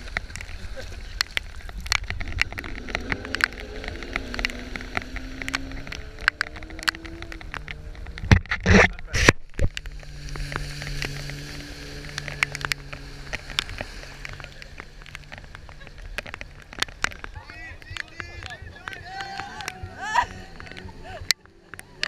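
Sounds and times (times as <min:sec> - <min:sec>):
choppy water: 0:00.0 - 0:22.0
jet ski engine: 0:00.0 - 0:22.0
water rushing over camera: 0:00.0 - 0:22.0
water drops ticking on camera: 0:01.2 - 0:08.4.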